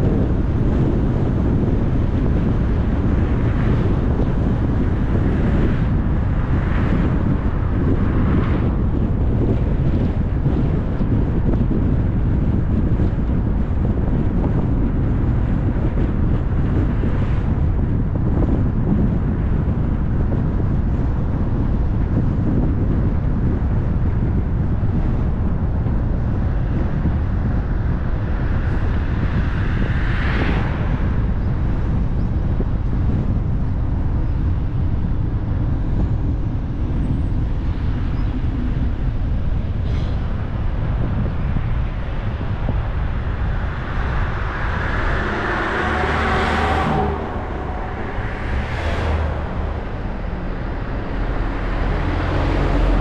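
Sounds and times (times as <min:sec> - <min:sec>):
car road and wind noise: 0:00.0 - 0:53.0
vehicles swooshing past: 0:41.7 - 0:53.0.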